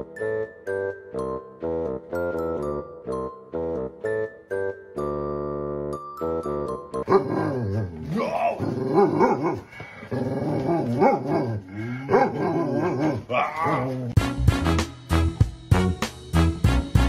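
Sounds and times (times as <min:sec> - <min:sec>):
dog whining and grumbling: 0:07.1 - 0:14.2
upbeat music: 0:14.2 - 0:17.0.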